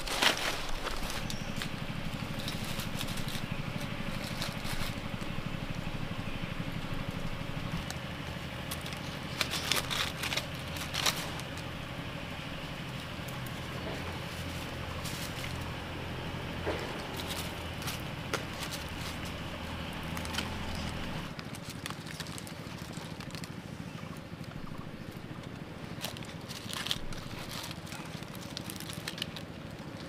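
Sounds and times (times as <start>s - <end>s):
thin wire rustling: 0.0s - 5.7s, 7.6s - 23.6s, 25.5s - 30.0s
steady low hum: 0.0s - 21.4s, 22.4s - 30.0s
dry leaves crackling: 0.0s - 30.0s.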